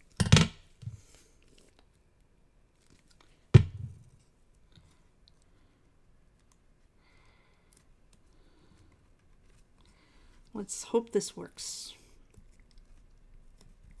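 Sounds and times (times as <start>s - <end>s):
knock on desk: 3.6s - 4.0s.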